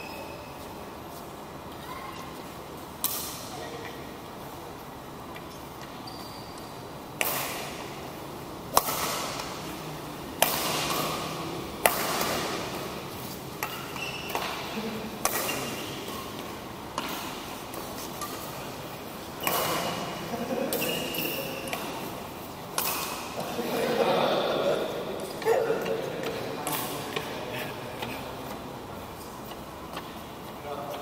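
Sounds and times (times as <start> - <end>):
rackets hitting shuttlecock: 3.0 - 4.0, 5.4 - 8.1, 8.7 - 18.7, 19.3 - 23.6, 24.9 - 27.4.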